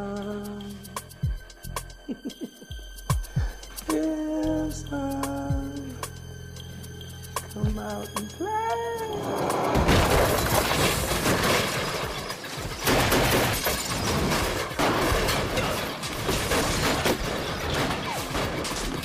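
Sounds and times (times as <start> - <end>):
things shattering and breaking: 9.7 - 19.0.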